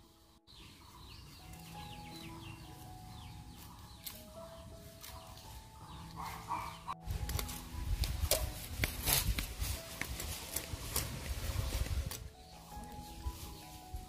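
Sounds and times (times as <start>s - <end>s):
chickens clucking: 0.5s - 7.5s.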